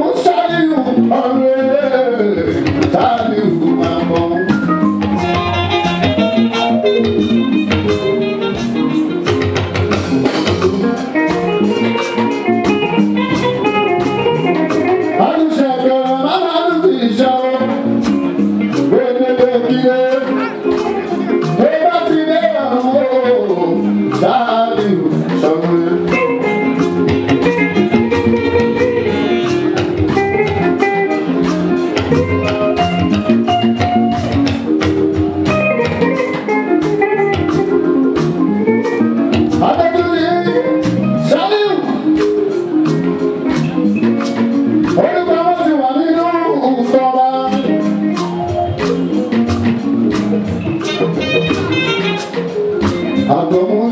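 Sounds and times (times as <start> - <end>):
man singing into a microphone: 0.0 - 4.7, 15.1 - 17.9, 18.7 - 26.2, 39.5 - 42.1, 44.8 - 48.1, 53.2 - 53.9
guitar lines: 0.0 - 53.9
live band music: 0.0 - 53.9
steady drumming: 0.0 - 53.9.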